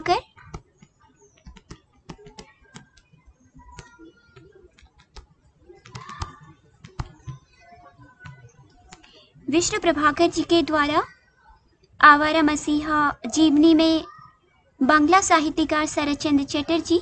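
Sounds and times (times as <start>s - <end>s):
stylus tapping on tablet screen: 0.2s - 9.3s.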